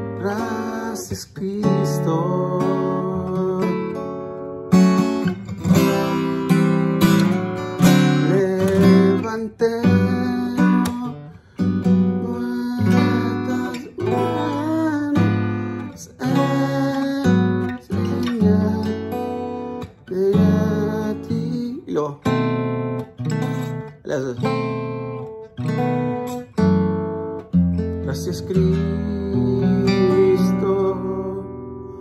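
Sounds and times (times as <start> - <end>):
acoustic guitar strumming: 0.0 - 32.0.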